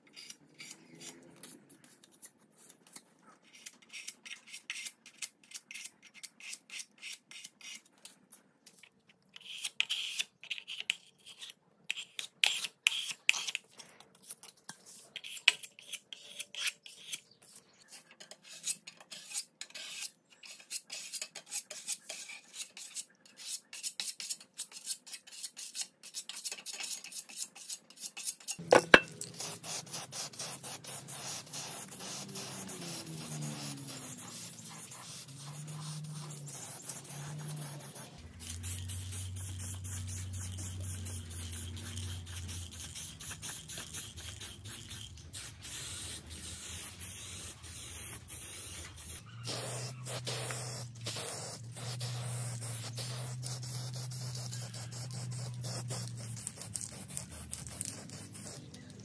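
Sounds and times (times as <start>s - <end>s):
paint scraper scraping metal: 14.2s - 58.9s.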